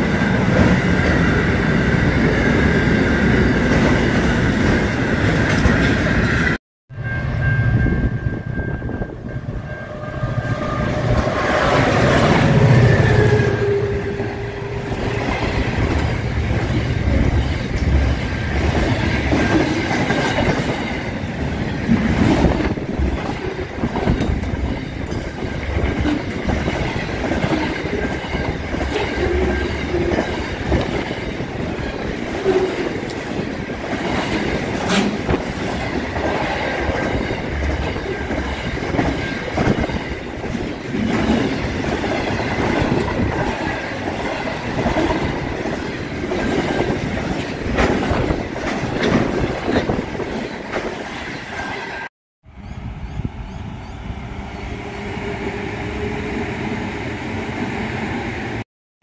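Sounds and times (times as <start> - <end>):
freight train wagons clacking: 14.4 - 52.0.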